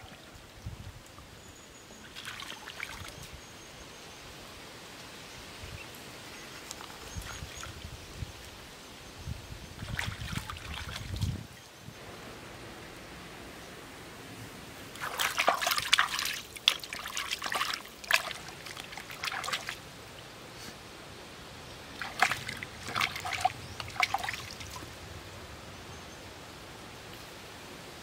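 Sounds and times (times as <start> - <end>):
creek water splashing: 2.0 - 3.2, 9.8 - 11.4, 14.8 - 20.8, 21.8 - 25.2
stream hissing: 12.0 - 28.0.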